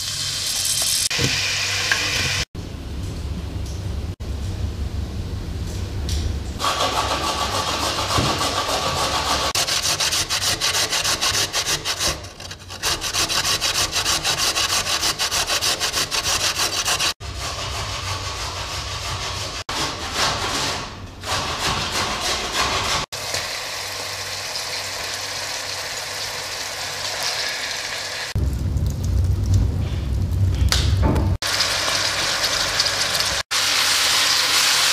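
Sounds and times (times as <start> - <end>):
fast rhythmic scraping strokes: 6.6 - 23.1.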